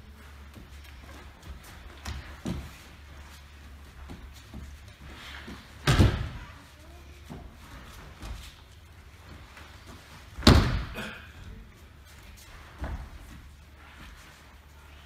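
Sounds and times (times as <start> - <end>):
body slapping on mats: 0.6 - 3.4, 4.0 - 6.6, 7.2 - 11.1.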